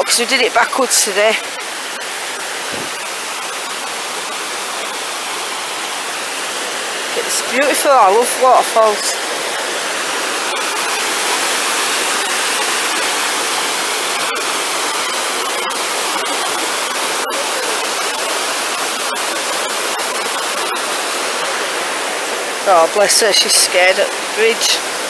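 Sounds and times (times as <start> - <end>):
stream rushing over boulders: 0.0 - 25.0.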